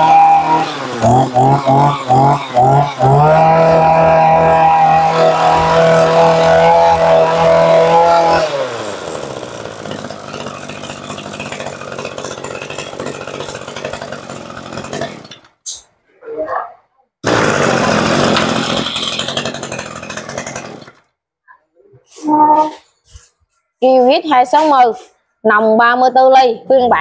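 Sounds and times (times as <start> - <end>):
brush cutter engine revving and idling: 0.0 - 15.5, 17.2 - 21.0.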